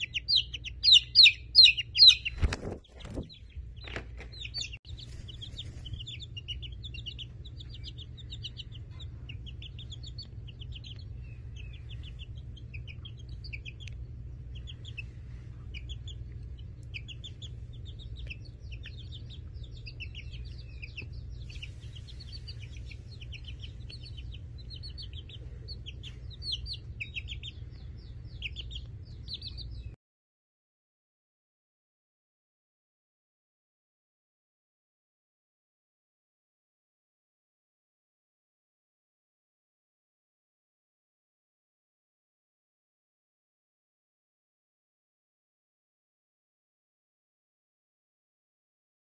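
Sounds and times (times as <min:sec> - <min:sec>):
chicks cheeping: 0:00.0 - 0:30.0
steady low hum: 0:00.0 - 0:30.0.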